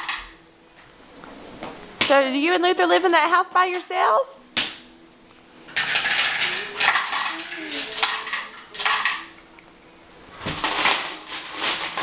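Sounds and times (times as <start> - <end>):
small hard pieces rattling: 5.8 - 9.2.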